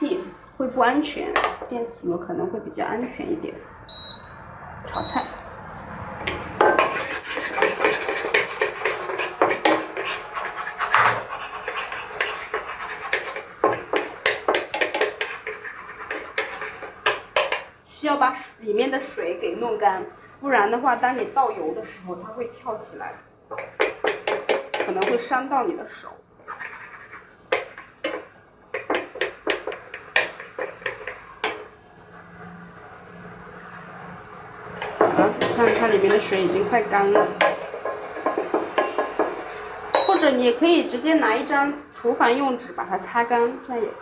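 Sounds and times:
wooden spatula scraping pan: 0:06.1 - 0:17.7, 0:20.8 - 0:25.7, 0:26.4 - 0:32.3, 0:34.6 - 0:40.0
wood tapping on pan: 0:13.1 - 0:17.7, 0:23.5 - 0:25.3, 0:27.5 - 0:31.7, 0:37.2 - 0:40.1.

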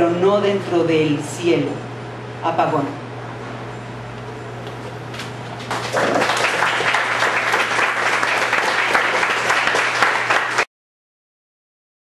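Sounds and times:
audience applauding: 0:05.6 - 0:10.7.

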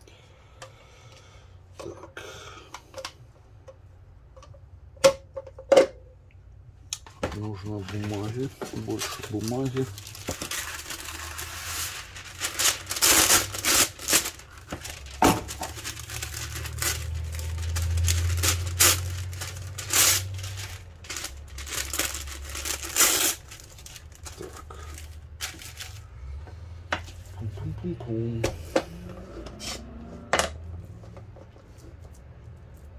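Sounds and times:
paper crinkling and tearing: 0:07.4 - 0:26.0.

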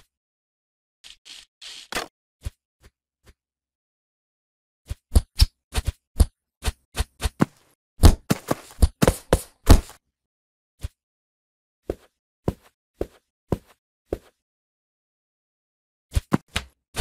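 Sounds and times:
cartoon punches and hits: 0:08.0 - 0:10.0.

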